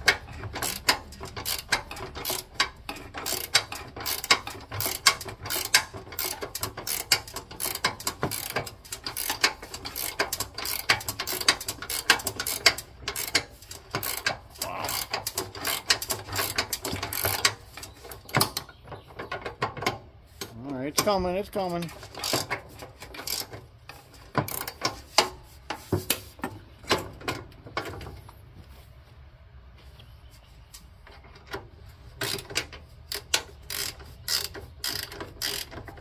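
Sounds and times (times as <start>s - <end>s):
ratcheting wrench clicking: 0.0s - 18.7s, 21.8s - 25.3s, 32.2s - 36.0s.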